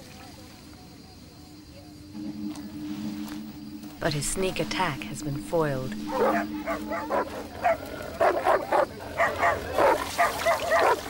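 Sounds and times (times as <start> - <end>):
dogs barking rapidly: 6.1 - 11.0.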